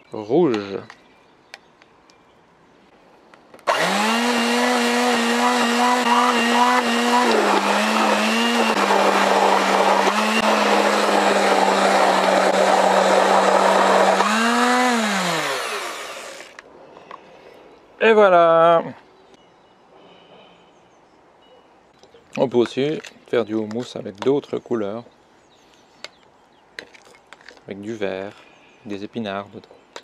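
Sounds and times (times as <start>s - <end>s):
stick blender whirring: 3.6s - 16.6s.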